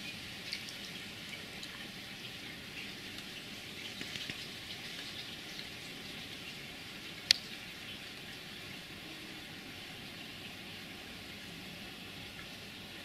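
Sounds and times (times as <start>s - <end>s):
light ticks and crackles: 3.1s - 5.7s, 7.2s - 8.4s.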